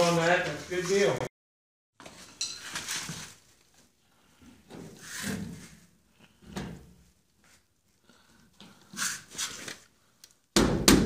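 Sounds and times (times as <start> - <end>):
loud knock: 10.6 - 11.0.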